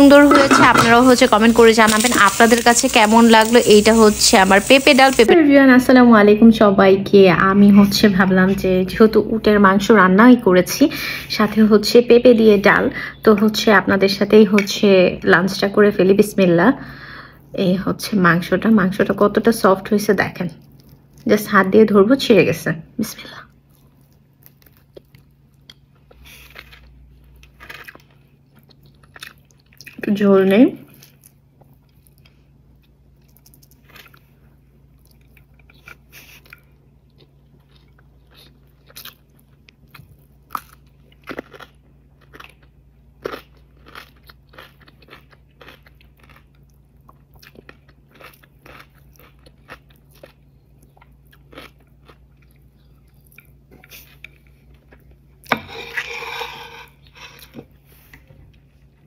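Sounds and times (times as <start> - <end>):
chewing and biting: 35.0 - 55.1.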